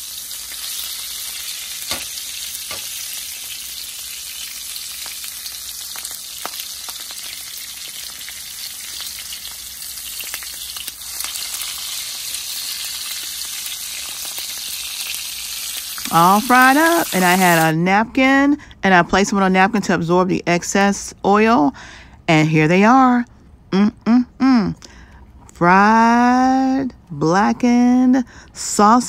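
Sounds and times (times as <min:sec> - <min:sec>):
sausages sizzling in oil: 0:00.0 - 0:17.7.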